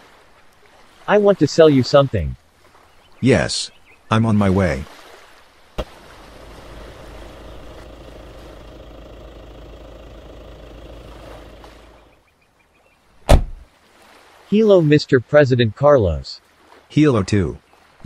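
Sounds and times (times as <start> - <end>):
car engine running: 5.8 - 12.2
sharp loud knock: 13.3 - 13.6.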